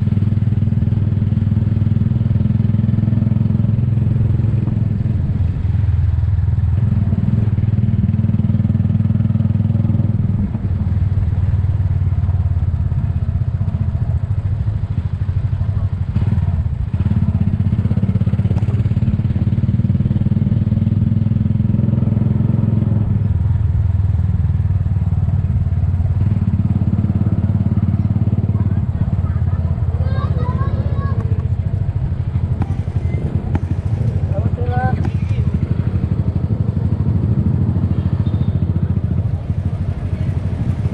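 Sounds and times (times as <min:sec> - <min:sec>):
motorcycle engine drone: 0:00.0 - 0:40.9.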